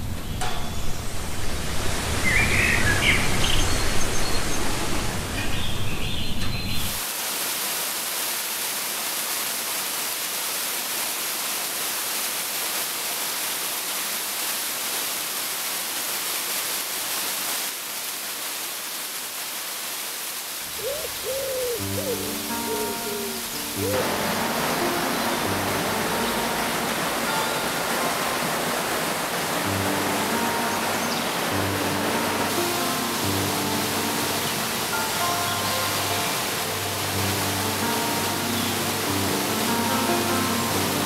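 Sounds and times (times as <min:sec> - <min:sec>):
waterfall rushing onto rock: 0:07.0 - 0:41.0
birds chirping: 0:20.7 - 0:27.1.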